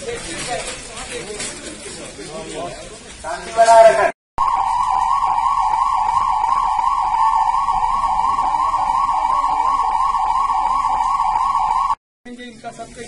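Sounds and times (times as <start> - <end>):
wavering siren: 4.4 - 12.0.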